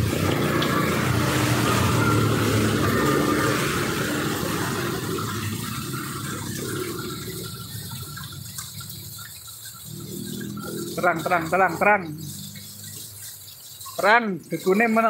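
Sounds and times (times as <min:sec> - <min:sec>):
car driving past on wet road: 0:00.0 - 0:07.6
rain falling on street: 0:00.0 - 0:15.0.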